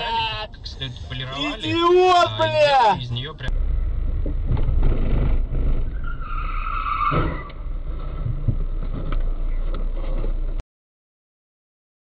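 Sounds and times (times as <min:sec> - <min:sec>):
car interior engine and road rumble: 0:00.0 - 0:10.6
tyres squealing in a skid: 0:05.8 - 0:07.5.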